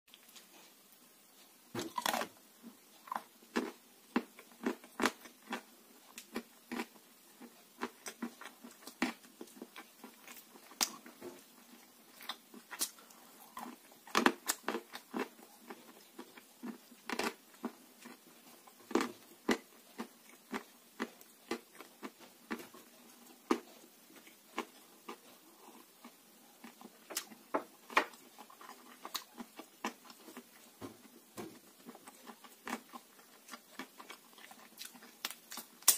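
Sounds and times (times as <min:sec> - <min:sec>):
clay crunching while chewed: 0:01.8 - 0:02.3, 0:12.2 - 0:30.7, 0:31.8 - 0:35.9.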